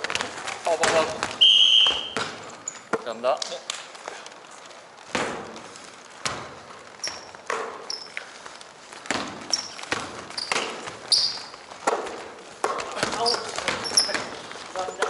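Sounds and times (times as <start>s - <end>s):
basketball bouncing on hardwood: 0.0s - 3.0s, 6.2s - 8.0s, 9.0s - 14.4s
sneakers squeaking: 0.0s - 3.0s, 5.0s - 15.0s.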